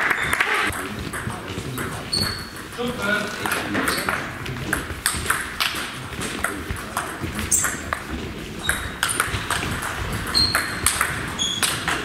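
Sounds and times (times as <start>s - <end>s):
shoes squeaking on floor: 0.0s - 12.0s
table tennis ball clicking: 8.7s - 12.0s.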